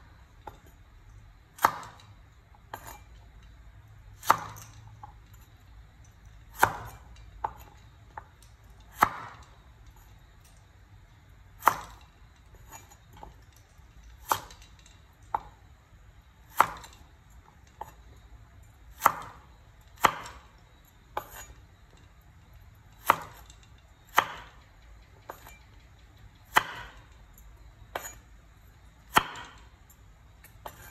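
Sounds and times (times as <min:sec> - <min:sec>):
knife chopping on wooden board: 0:01.6 - 0:02.0, 0:02.7 - 0:03.0, 0:04.2 - 0:04.7, 0:06.5 - 0:07.8, 0:08.9 - 0:09.4, 0:11.6 - 0:12.0, 0:14.2 - 0:14.6, 0:16.5 - 0:17.0, 0:18.9 - 0:19.4, 0:20.0 - 0:20.5, 0:21.2 - 0:21.6, 0:23.0 - 0:23.4, 0:24.1 - 0:24.6, 0:25.3 - 0:25.6, 0:26.4 - 0:27.0, 0:27.9 - 0:28.2, 0:29.1 - 0:29.6, 0:30.6 - 0:30.9.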